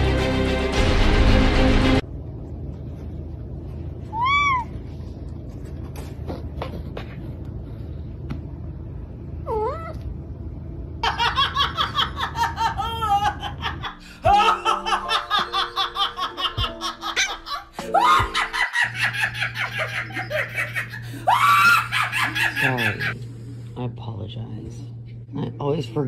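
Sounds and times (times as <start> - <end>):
low hum: 0.0 - 26.0
woman laughing hard: 11.0 - 23.2.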